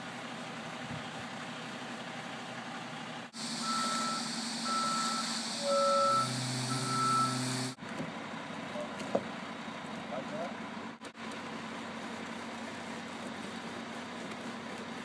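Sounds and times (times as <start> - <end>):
outdoor background: 0.0 - 15.0
truck engine running: 0.0 - 15.0
reversing alarm beeping: 3.4 - 7.8.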